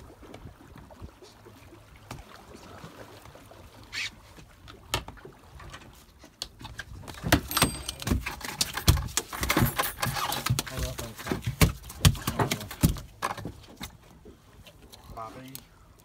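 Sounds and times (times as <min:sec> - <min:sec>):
water lapping boat hull: 0:00.0 - 0:16.0
sharp knocks and clatters: 0:07.2 - 0:13.6.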